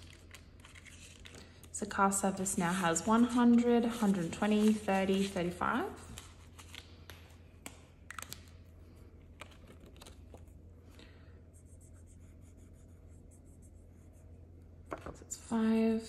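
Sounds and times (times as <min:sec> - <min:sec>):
banknotes and envelope rustling: 0:00.0 - 0:01.7, 0:02.7 - 0:07.2
marker scribbling on paper: 0:11.6 - 0:14.4.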